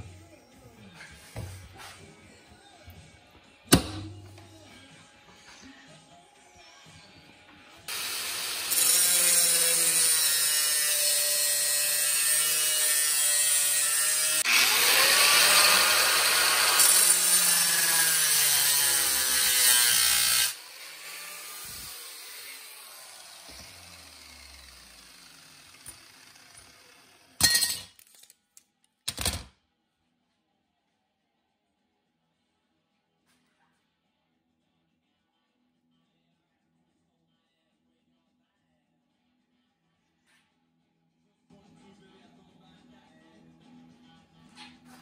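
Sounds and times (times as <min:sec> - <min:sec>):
angle grinder cutting steel: 0:07.9 - 0:27.4.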